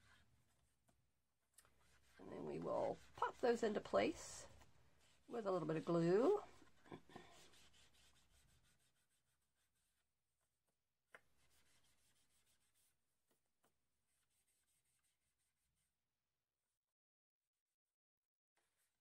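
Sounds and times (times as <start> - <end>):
ink applicator rubbing on paper: 1.8 - 10.0.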